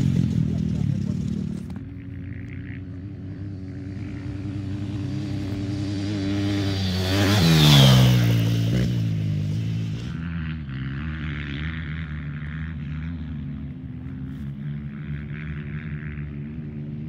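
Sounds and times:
motorcycle passing by: 0.0 - 17.0.

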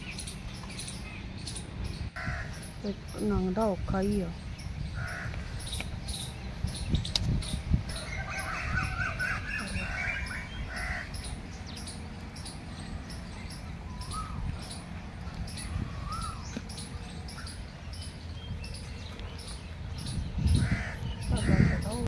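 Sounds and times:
steady low rumble: 0.0 - 22.0
crows cawing: 2.2 - 2.7, 4.9 - 5.6, 7.9 - 11.4, 20.5 - 22.0.

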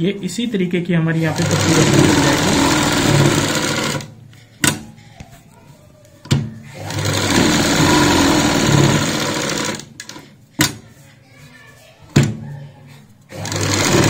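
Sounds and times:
sewing machine stitching: 1.2 - 4.1, 6.7 - 10.2, 13.3 - 14.0.

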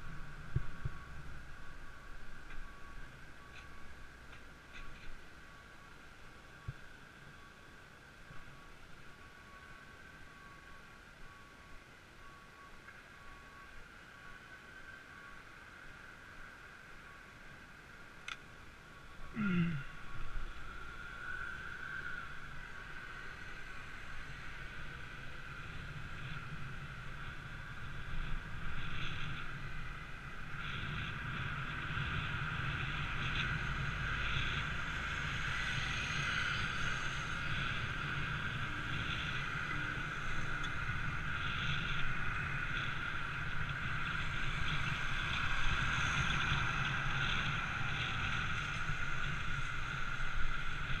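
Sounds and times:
road noise: 0.0 - 51.0
wind rush on microphone: 22.1 - 51.0.

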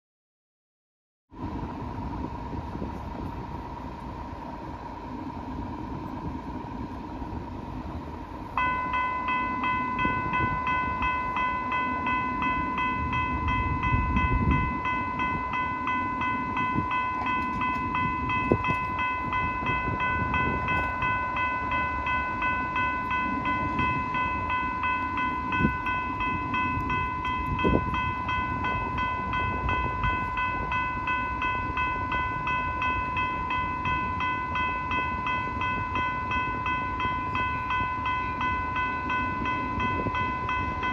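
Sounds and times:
railroad crossing warning bell: 1.4 - 40.9.

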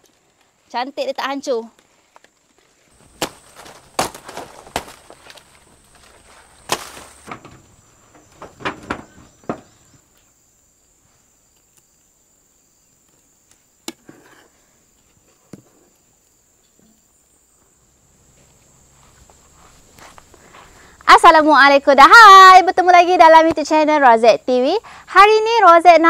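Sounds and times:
high insect buzz: 0.9 - 26.0
machete chopping plant trunk: 3.0 - 5.4, 6.0 - 7.5.

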